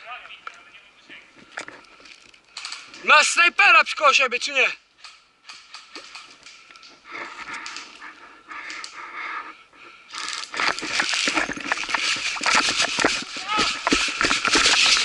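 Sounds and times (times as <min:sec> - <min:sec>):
shuffling and rustling: 0:05.6 - 0:15.0
gear rattling: 0:10.1 - 0:15.0
running footsteps on dry leaves: 0:10.2 - 0:15.0.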